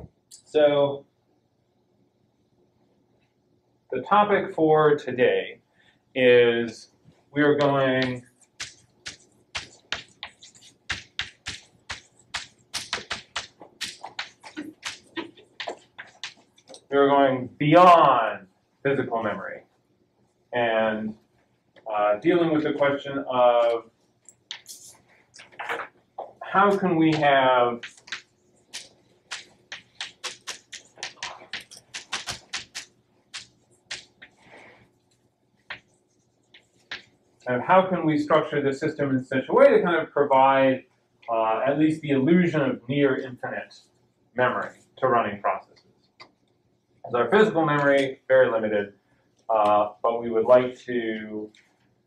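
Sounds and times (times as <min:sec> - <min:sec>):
chalk tapping and scratching: 0:07.4 - 0:16.9, 0:23.6 - 0:34.8, 0:35.6 - 0:37.5.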